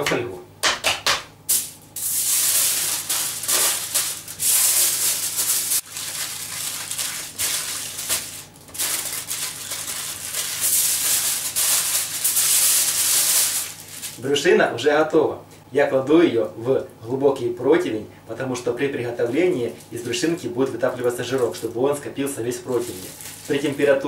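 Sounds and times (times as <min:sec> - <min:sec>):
aluminium foil crinkling: 0:01.5 - 0:14.2, 0:19.1 - 0:24.0.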